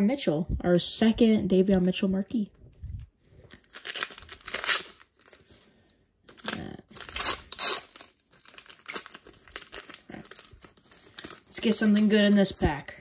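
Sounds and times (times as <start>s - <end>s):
foil wrapper tearing and crinkling: 3.6s - 5.7s, 6.3s - 12.7s.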